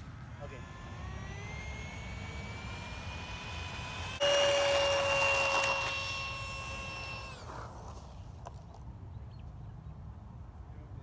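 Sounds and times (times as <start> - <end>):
electric fan whining: 0.0 - 7.9.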